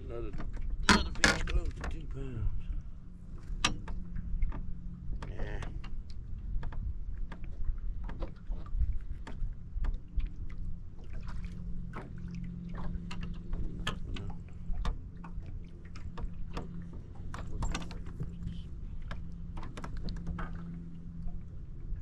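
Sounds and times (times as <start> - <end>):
low rumble of wind and water: 0.0 - 22.0
sharp clicks and light knocks: 0.2 - 2.0, 13.0 - 20.7.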